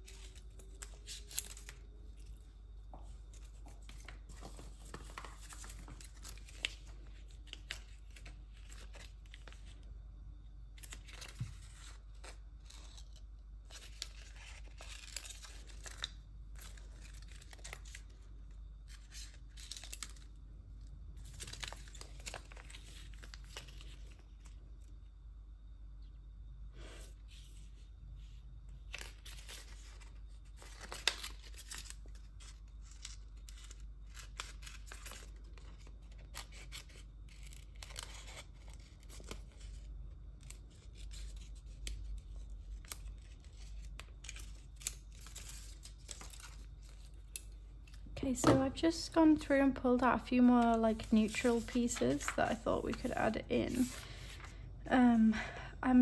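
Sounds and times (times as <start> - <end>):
plastic tape crinkling: 10.8 - 18.2, 49.8 - 54.5.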